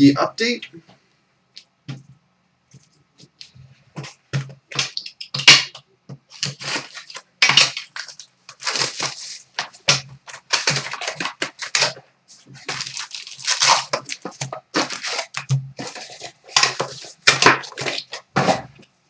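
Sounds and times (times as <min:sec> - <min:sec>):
plastic wrap crinkling: 0:02.7 - 0:18.9
plastic wrap tearing: 0:06.3 - 0:18.6.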